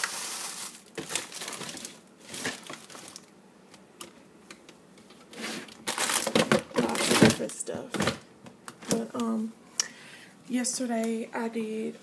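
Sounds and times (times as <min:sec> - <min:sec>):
plastic bags and foil rustling: 0:00.0 - 0:03.3, 0:05.3 - 0:08.2.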